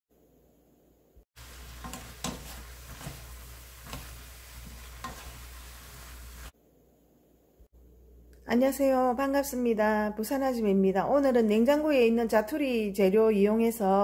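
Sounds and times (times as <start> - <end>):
food sizzling in a frying pan: 1.3 - 6.6
spatula scraping and knocking pan: 1.4 - 6.5.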